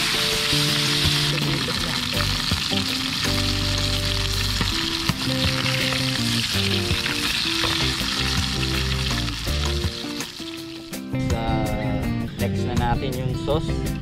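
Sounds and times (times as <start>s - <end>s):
fish sizzling in oil: 0.0s - 11.1s
background music with bass: 0.0s - 14.0s.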